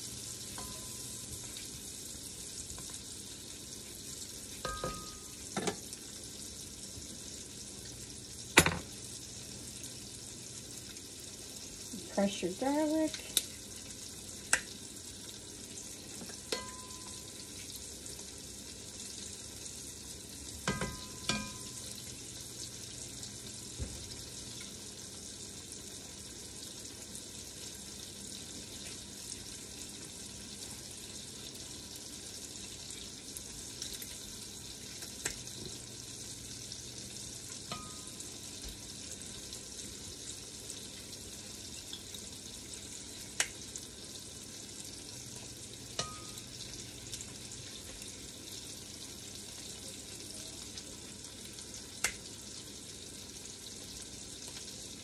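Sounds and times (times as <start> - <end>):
vegetables sizzling in a pot: 0.0 - 55.0
utensils knocking against pot: 4.6 - 5.8, 20.6 - 21.8.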